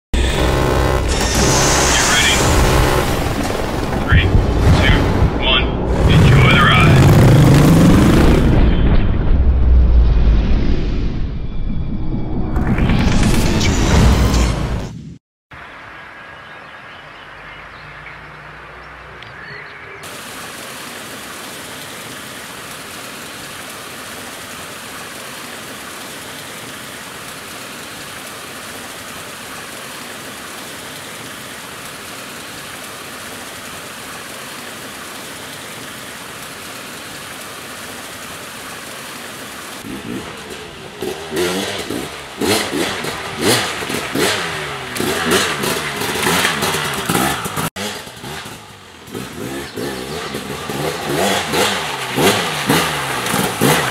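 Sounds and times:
motorbike engine revving: 0.2 - 8.7, 39.8 - 53.9
water pouring over waterfall: 20.0 - 47.7.

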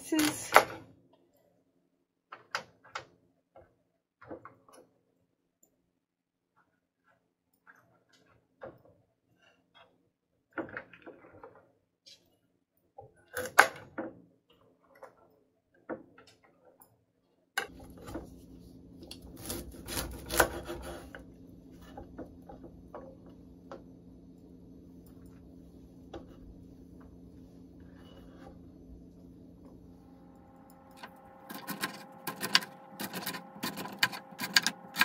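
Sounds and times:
steady low hum: 17.7 - 35.0
knife chopping on wooden board: 19.4 - 20.9.

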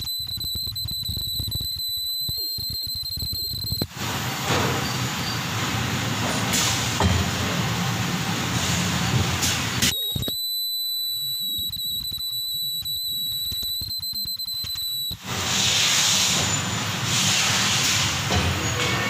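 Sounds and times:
machine high-pitched whine: 0.0 - 3.9, 9.8 - 15.3.

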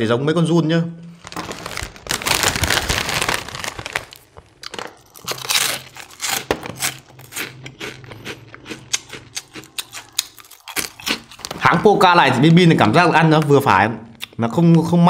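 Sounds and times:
plastic bag crinkling: 1.1 - 7.6, 10.0 - 12.6
crunching and chewing snack: 1.3 - 12.6.

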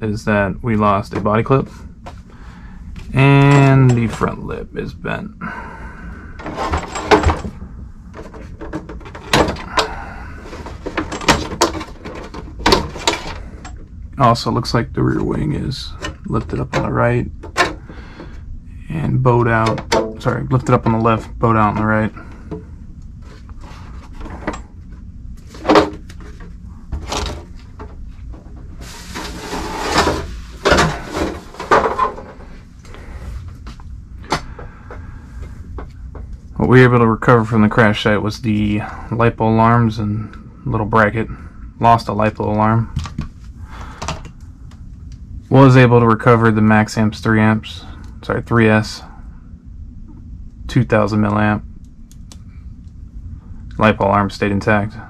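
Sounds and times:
plastic shell rustling and rattling: 6.4 - 13.8, 23.4 - 32.5.

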